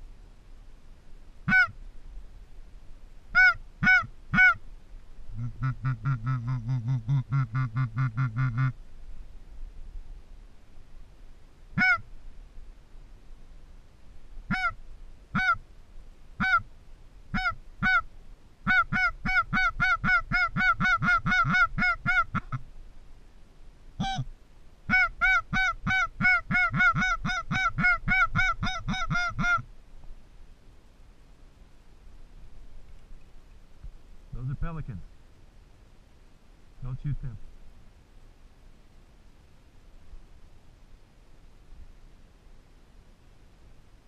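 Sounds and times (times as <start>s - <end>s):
duck call quacks: 1.5s - 1.8s, 3.3s - 4.6s, 5.4s - 8.8s, 11.8s - 12.0s, 14.5s - 15.6s, 16.4s - 16.7s, 17.3s - 18.1s, 18.7s - 22.6s, 24.0s - 24.3s, 24.9s - 29.6s.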